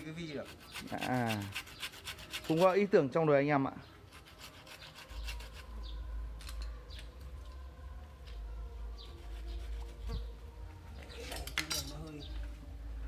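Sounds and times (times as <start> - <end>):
chisel gouging wood: 0.4 - 2.6.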